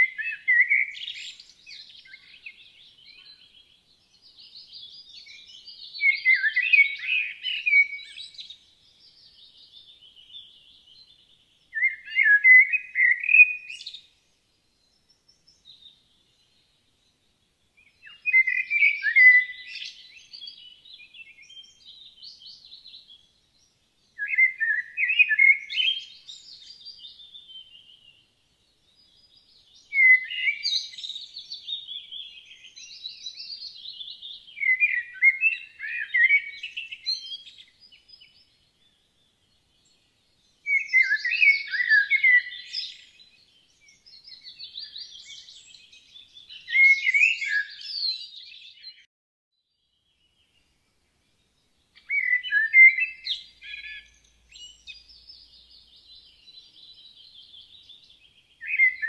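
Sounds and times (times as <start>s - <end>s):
songbird warbling: 33.9s - 37.7s, 52.0s - 55.3s.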